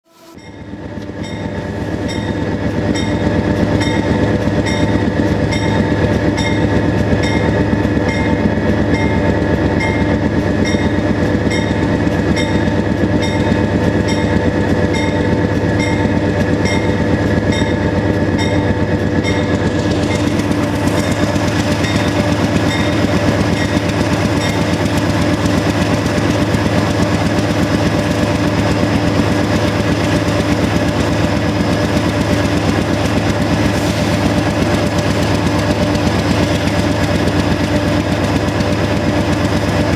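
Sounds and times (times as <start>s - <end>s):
diesel locomotive engines droning: 0.0s - 39.9s.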